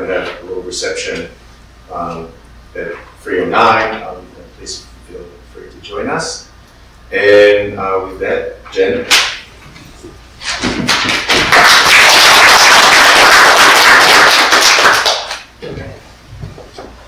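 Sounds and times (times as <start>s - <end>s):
audience applauding: 10.8s - 15.5s.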